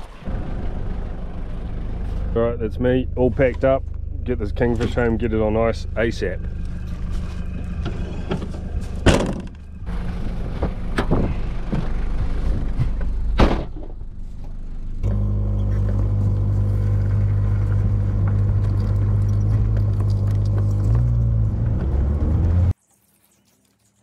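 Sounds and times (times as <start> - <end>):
car engine running: 0.0 - 22.8
car door slamming: 9.0 - 9.6, 13.3 - 14.0.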